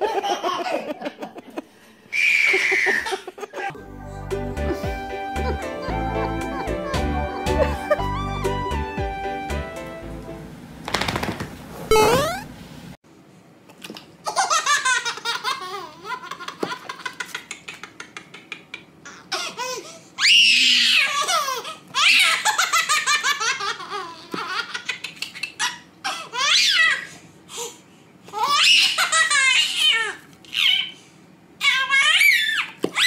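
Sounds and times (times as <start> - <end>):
baby laughing and squealing: 2.2 - 3.7, 19.0 - 27.1, 28.4 - 31.0, 31.6 - 33.0.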